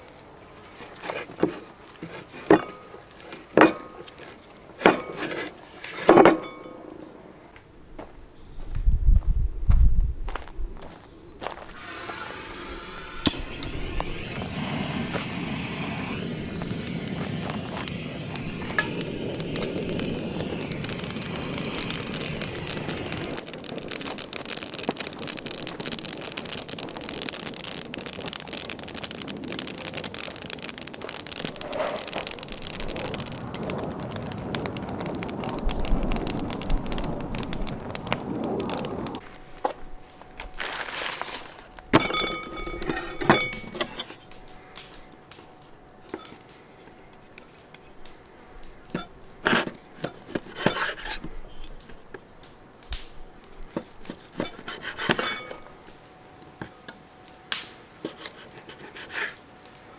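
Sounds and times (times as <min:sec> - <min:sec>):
wood fire crackling: 0:00.0 - 0:07.6, 0:10.3 - 0:59.9
gas torch hissing: 0:11.7 - 0:23.5, 0:29.0 - 0:39.2.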